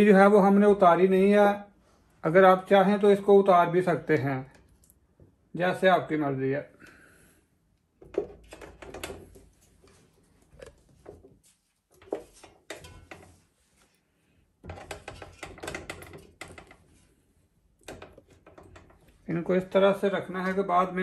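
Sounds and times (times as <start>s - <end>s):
chicken clunking into metal pot: 12.0s - 13.3s, 14.6s - 16.8s.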